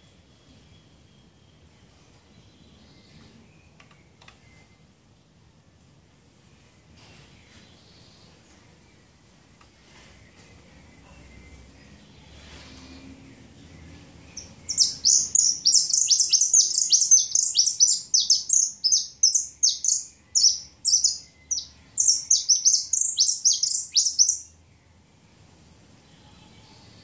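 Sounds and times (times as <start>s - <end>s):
finch singing high chirps: 11.0s - 24.6s.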